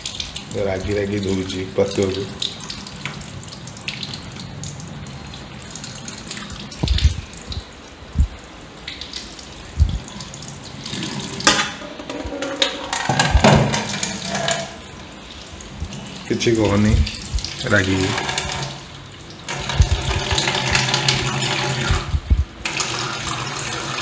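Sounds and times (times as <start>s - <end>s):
water splashing: 0.0s - 24.0s
tap running into metal sink: 10.9s - 14.8s.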